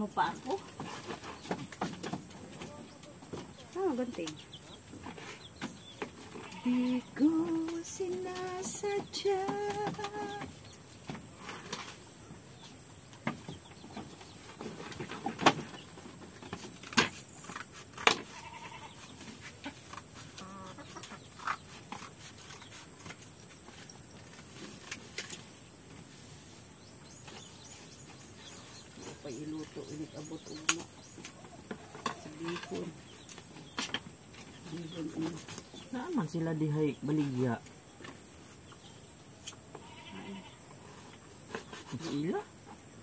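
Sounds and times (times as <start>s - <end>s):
goat bleating: 6.4s - 7.1s, 18.3s - 19.0s, 39.8s - 40.6s.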